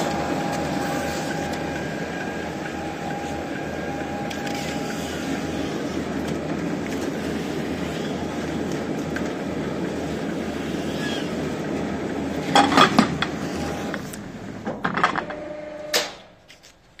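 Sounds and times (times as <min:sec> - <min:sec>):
machine motor humming: 0:00.0 - 0:12.4.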